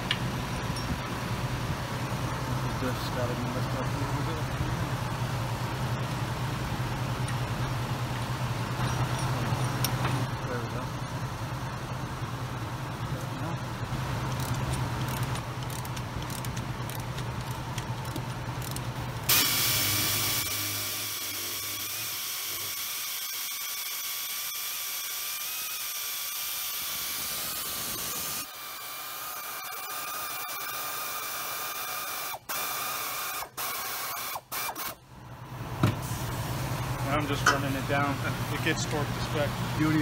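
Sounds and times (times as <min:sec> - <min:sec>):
air ratchet whine and hiss: 0:14.3 - 0:35.0.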